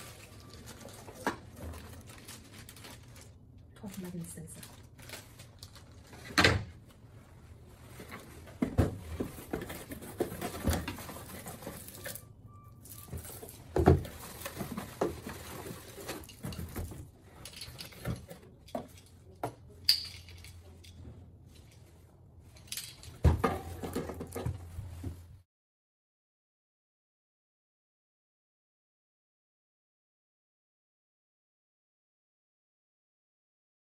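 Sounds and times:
cardboard boxes being handled: 7.9s - 12.1s.

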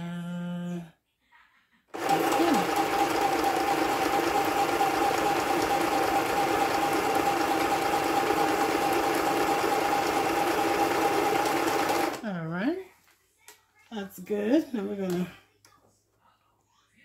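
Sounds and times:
sewing machine running: 2.0s - 12.2s.

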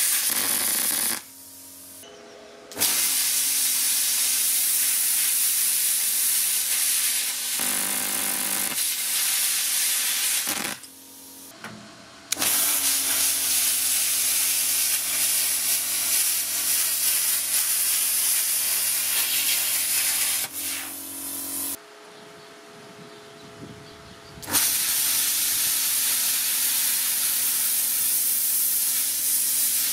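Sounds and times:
plasma cutter hissing: 0.0s - 2.0s, 2.7s - 11.5s, 12.3s - 21.8s, 24.4s - 29.9s
compressor humming: 0.0s - 3.5s.

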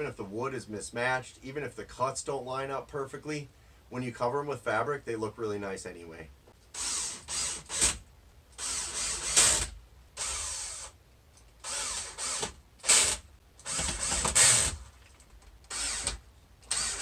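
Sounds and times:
cordless drill driving screws: 6.7s - 8.0s, 8.6s - 11.0s, 11.6s - 14.9s, 15.7s - 17.0s.

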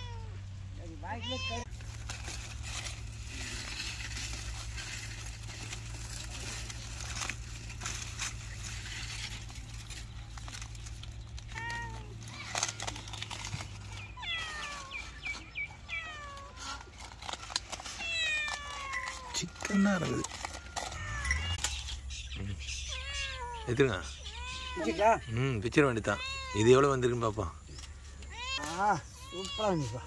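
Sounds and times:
aluminium foil crinkling: 1.2s - 22.2s, 22.8s - 30.0s
high falling animal cries: 22.8s - 25.5s.

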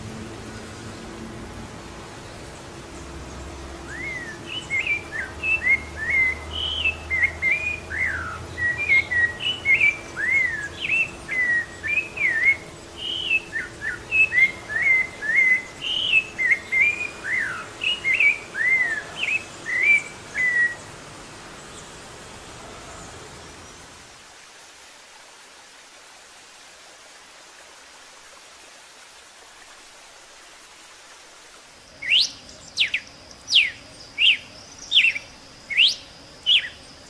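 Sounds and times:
thrush singing whistled notes: 3.2s - 21.0s, 31.9s - 37.0s.

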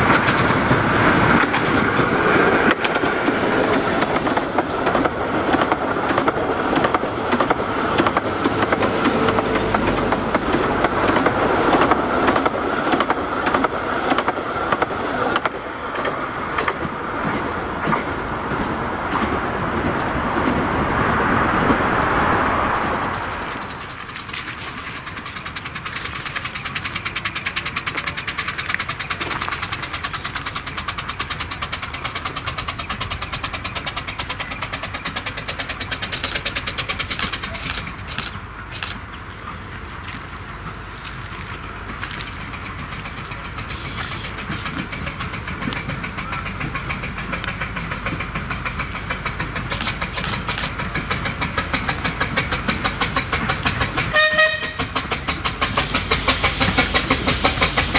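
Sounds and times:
steam locomotive exhaust beats: 0.0s - 57.9s.

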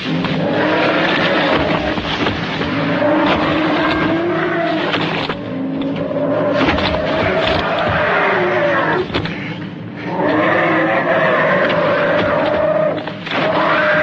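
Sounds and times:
rough rumbling: 0.0s - 14.0s
dinosaur screeching calls: 2.8s - 9.1s, 10.0s - 14.0s.

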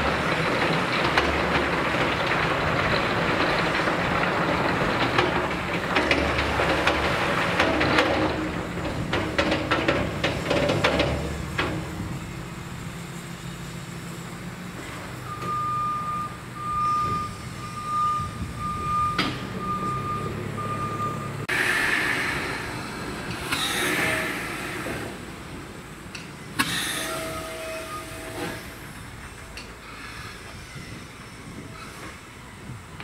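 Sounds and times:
diesel engine running: 0.0s - 27.0s
reversing alarm beeping: 15.2s - 21.4s.

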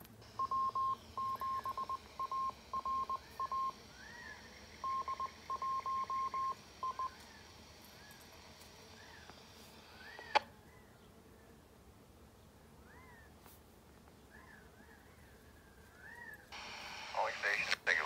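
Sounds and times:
morse code beeps: 0.4s - 3.8s, 4.8s - 7.2s.

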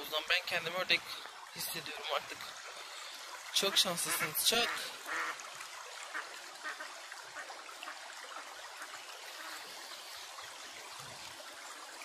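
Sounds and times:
water trickling: 0.0s - 12.0s
ducks quacking softly: 3.6s - 5.4s, 6.1s - 10.2s.

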